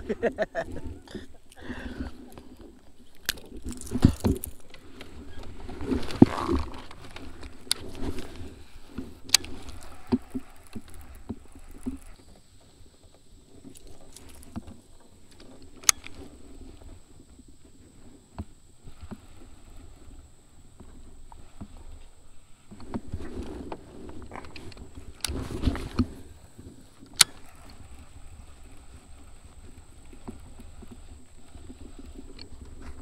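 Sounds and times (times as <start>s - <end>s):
fishing gear knocking and clicking: 3.0s - 12.1s.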